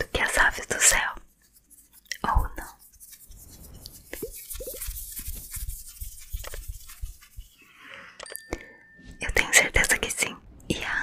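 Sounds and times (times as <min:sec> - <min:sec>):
fingertips rubbing and tapping microphone: 0:00.1 - 0:07.7.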